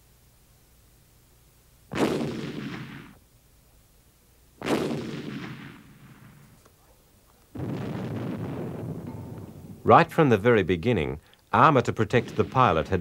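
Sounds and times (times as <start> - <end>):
gunshots with rumbling echo: 1.9 - 3.2, 4.6 - 6.6, 7.5 - 10.1, 12.0 - 13.0.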